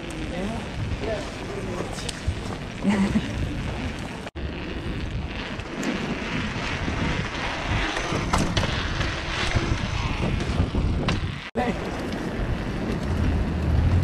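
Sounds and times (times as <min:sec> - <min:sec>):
bike tyres rolling on paving: 0:00.0 - 0:14.0
wind buffeting microphone: 0:00.0 - 0:14.0
bike knocks and rattles: 0:05.0 - 0:14.0.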